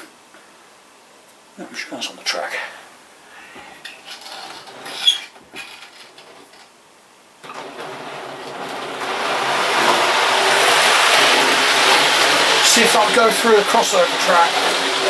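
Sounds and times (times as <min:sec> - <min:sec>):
model train running on track: 0:07.5 - 0:15.0.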